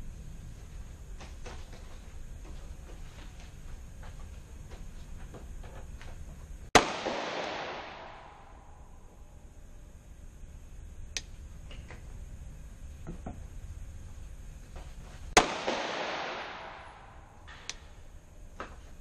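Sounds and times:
pistol shot with echo: 6.8s - 8.6s, 15.4s - 17.4s.

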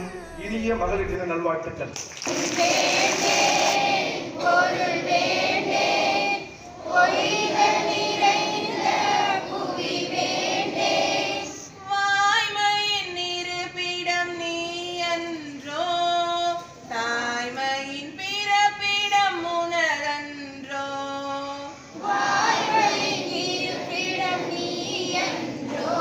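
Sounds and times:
group of voices singing: 2.3s - 11.9s, 21.3s - 26.0s
woman singing into microphone: 11.6s - 21.8s.

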